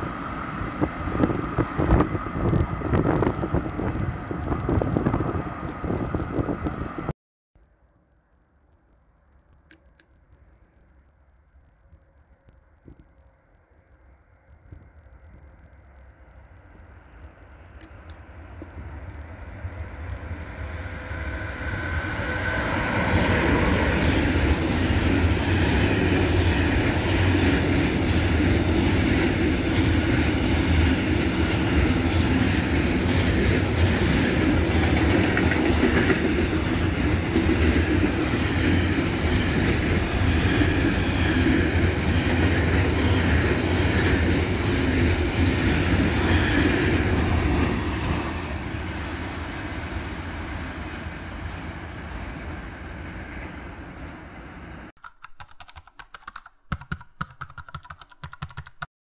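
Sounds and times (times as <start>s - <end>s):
freight train rumbling: 0.0s - 7.1s, 14.4s - 54.9s
wheels rattling on rails: 0.0s - 7.1s, 17.8s - 54.9s.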